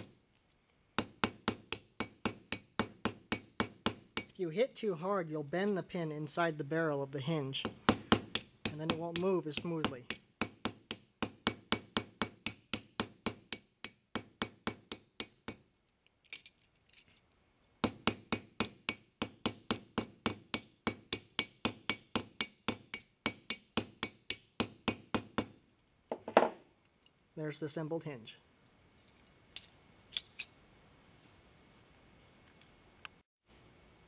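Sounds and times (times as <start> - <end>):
hammer tapping metal pin: 1.0 - 4.4, 17.8 - 25.5.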